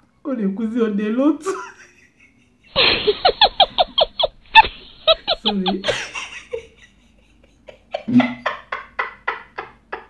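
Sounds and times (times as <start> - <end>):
woman laughing hard: 1.5 - 10.0
woman speaking: 4.6 - 6.0.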